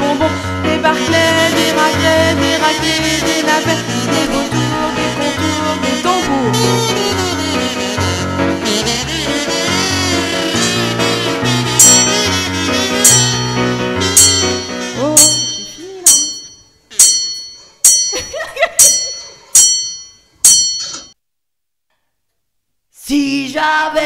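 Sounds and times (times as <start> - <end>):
person singing: 0.0 - 8.0, 14.0 - 16.4, 23.0 - 24.0
digital piano playing chords: 0.0 - 17.6.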